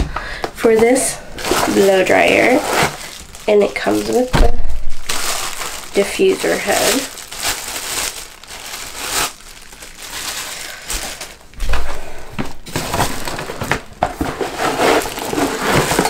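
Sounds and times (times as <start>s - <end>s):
plastic packaging crinkling: 0.6s - 16.0s.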